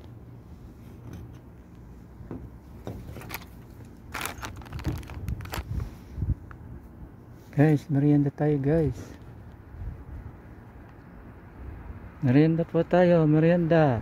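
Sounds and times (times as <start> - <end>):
steady low hum: 0.0 - 14.0
clicks and rustles: 2.8 - 5.8.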